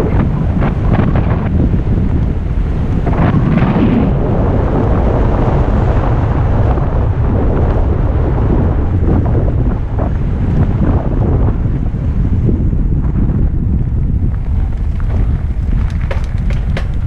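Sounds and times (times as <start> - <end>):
wind buffeting microphone: 0.0 - 17.0
bike rattling over rough ground: 12.6 - 17.0.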